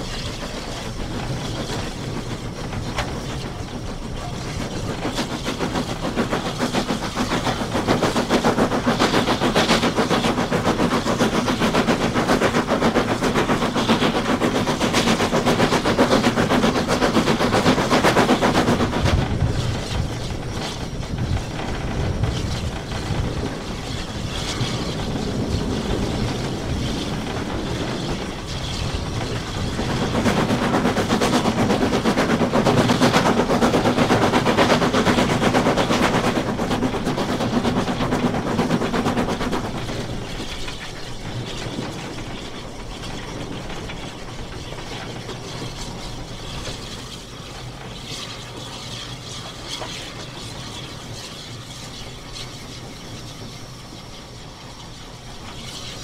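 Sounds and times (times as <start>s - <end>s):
clatter of locomotive wheels: 0.0s - 56.0s.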